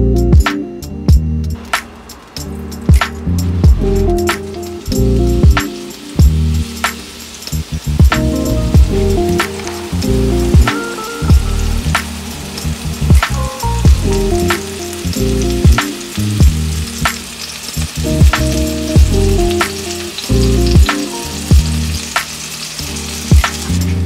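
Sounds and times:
background music with beat: 0:00.0 - 0:24.0
mushrooms sizzling in oil: 0:01.6 - 0:24.0.

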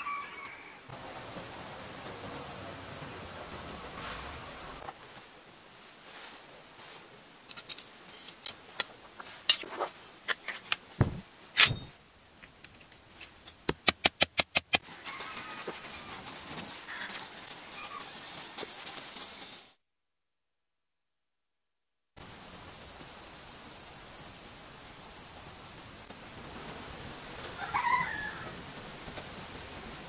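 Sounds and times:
brass fittings clinking: 0:10.3 - 0:12.0.

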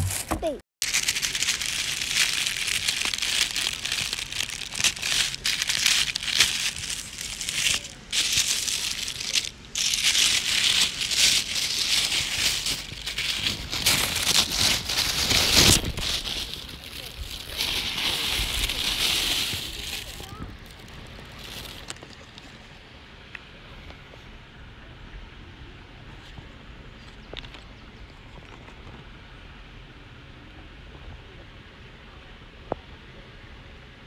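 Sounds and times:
tissue paper crinkling: 0:00.0 - 0:22.5.

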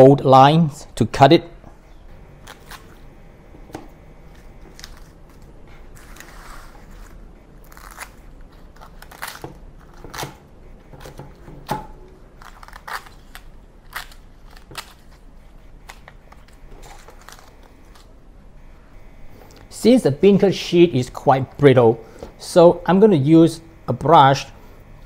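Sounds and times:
dried beancurd sheet crackling: 0:02.2 - 0:03.1, 0:04.2 - 0:11.2, 0:12.1 - 0:18.2.

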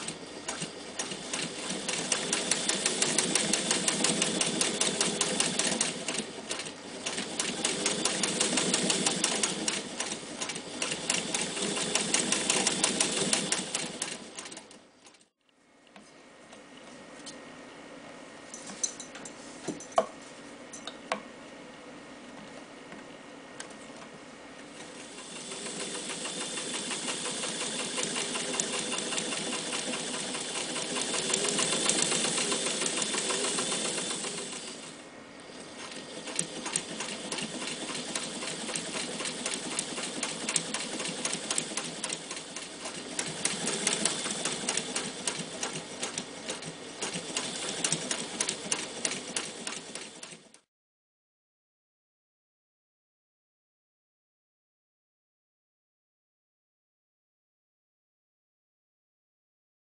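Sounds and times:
sewing machine stitching: 0:00.0 - 0:15.3, 0:24.9 - 0:50.7.

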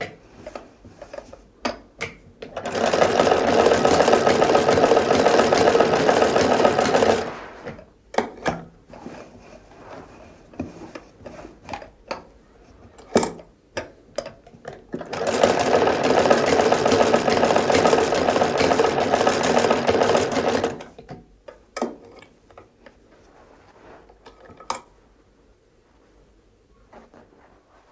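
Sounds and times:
sewing machine stitching: 0:02.4 - 0:07.7, 0:15.0 - 0:20.9.

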